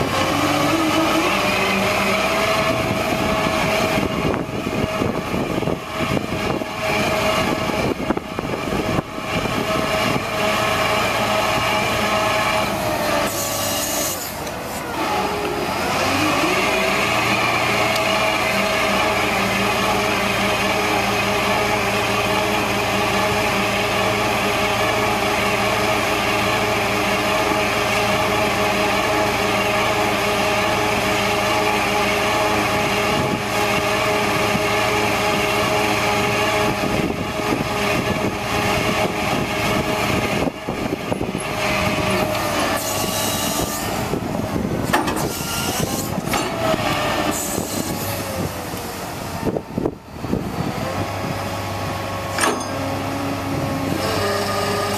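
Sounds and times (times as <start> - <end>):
hydraulic boom shifting tones: 0.0 - 54.9
truck engine running: 0.0 - 54.9.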